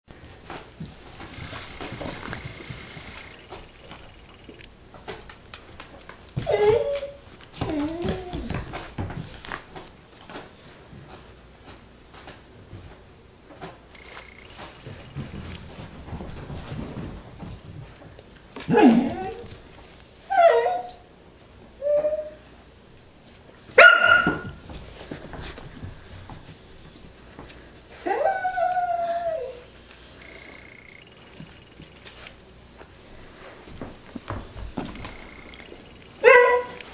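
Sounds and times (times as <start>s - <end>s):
paws clicking on floor: 0.2s - 20.8s, 23.2s - 36.9s
dog whining: 6.1s - 8.7s, 16.4s - 17.7s, 18.7s - 21.1s, 21.8s - 23.4s, 26.6s - 27.1s, 28.0s - 36.9s.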